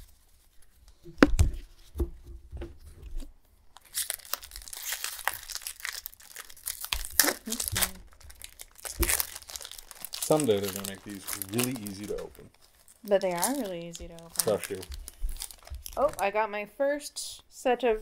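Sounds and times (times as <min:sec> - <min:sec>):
foil wrapper crinkling and tearing: 0:03.7 - 0:16.3.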